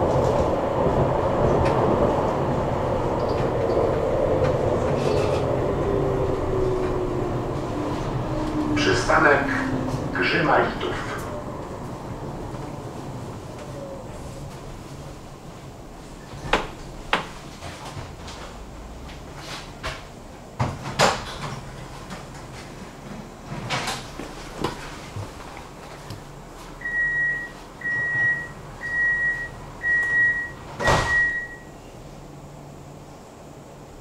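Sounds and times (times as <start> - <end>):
tram doors shutting with a knock: 0.0 - 31.6
short high warning beeps: 26.8 - 31.8.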